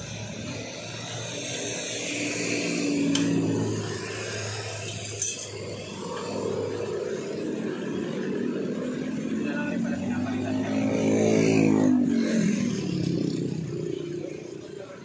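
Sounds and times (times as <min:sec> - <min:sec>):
traffic noise: 0:00.0 - 0:15.0
metal tools clinking: 0:04.7 - 0:05.7.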